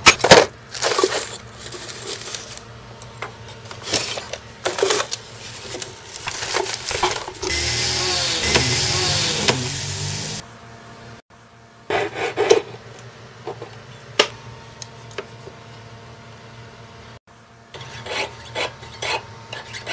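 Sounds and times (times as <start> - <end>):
rotary tool whining: 7.4 - 10.4
saw rasping through sheet metal: 7.5 - 10.4.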